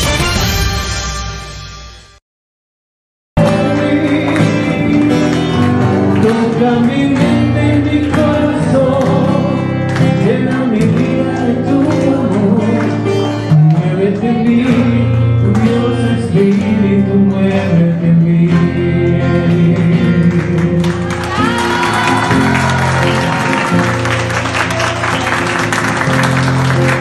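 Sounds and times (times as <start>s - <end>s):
person singing over instruments: 3.4s - 23.3s.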